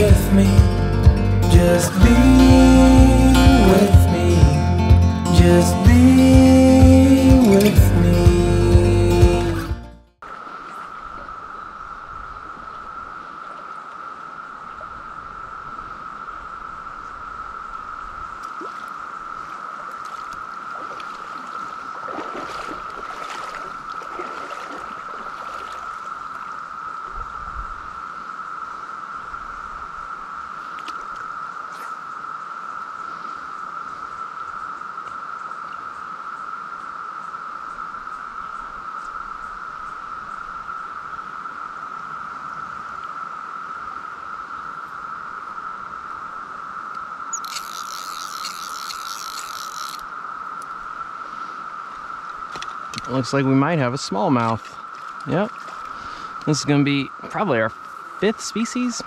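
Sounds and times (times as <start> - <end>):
cicada chorus drone: 0.0 - 59.0
water splashing and gurgling: 18.3 - 27.3, 47.3 - 50.1
sudden hissing noise: 42.9 - 59.0.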